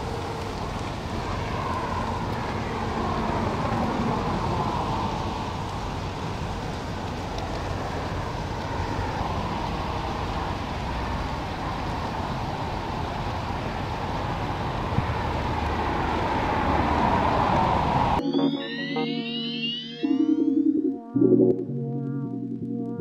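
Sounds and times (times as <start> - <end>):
freeway traffic rumble: 0.0 - 18.2.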